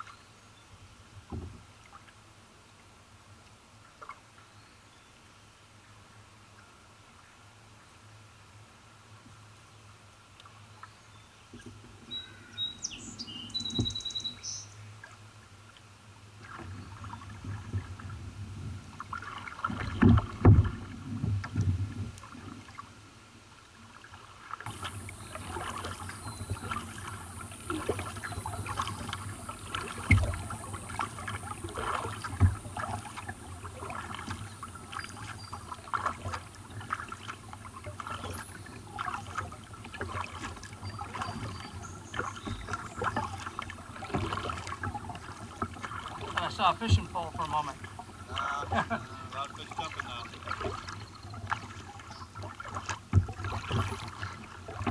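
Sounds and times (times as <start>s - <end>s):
paddle splashing in water: 0.9s - 2.7s, 3.3s - 4.5s, 9.1s - 54.9s
bird chirping: 12.1s - 14.8s, 25.1s - 26.9s.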